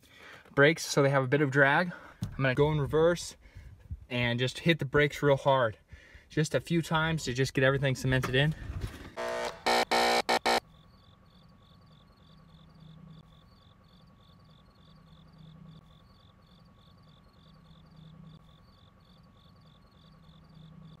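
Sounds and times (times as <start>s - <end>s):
crickets chirping: 10.6s - 21.0s.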